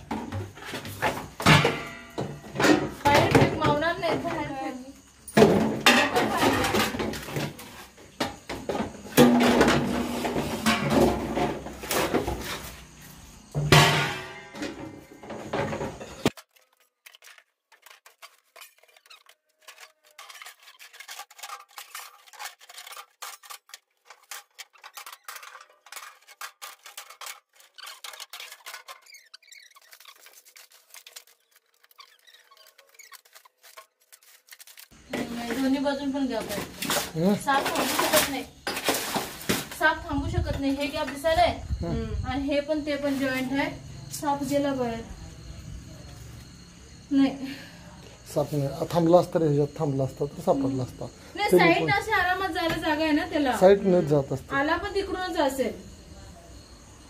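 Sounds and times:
rapid clicking and rustling: 16.3 - 35.0.

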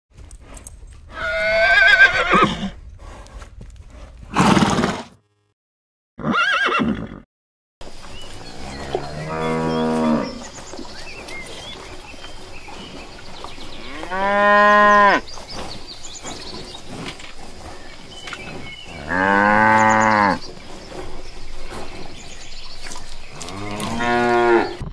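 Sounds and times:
horse whinnying: 1.1 - 2.8, 6.2 - 7.2
cattle mooing: 8.4 - 10.5, 13.7 - 15.3, 17.1 - 20.5, 23.2 - 24.8.

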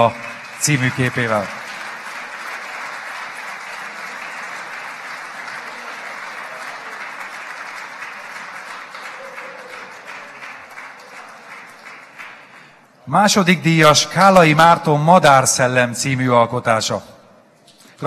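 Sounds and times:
audience applauding: 0.0 - 12.9.

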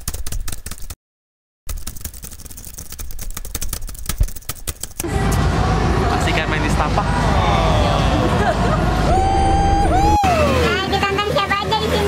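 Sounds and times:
rapid irregular clicking: 0.0 - 1.0, 1.7 - 5.1
outdoor street noise: 5.0 - 12.0.

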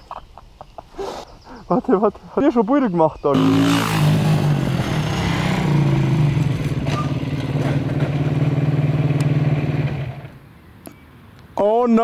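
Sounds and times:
motorcycle engine running: 3.4 - 10.4.

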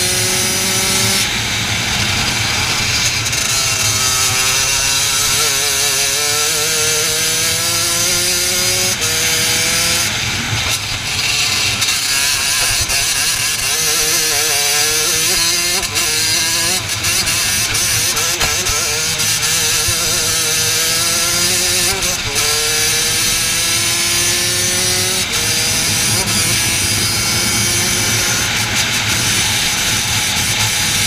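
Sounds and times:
racing kart engine revving: 0.0 - 31.0.

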